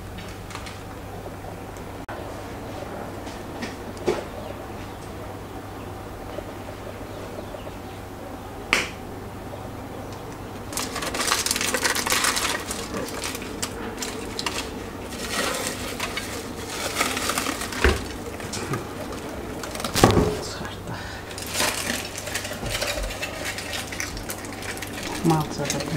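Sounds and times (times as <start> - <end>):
aluminium foil crinkling: 10.1 - 25.9.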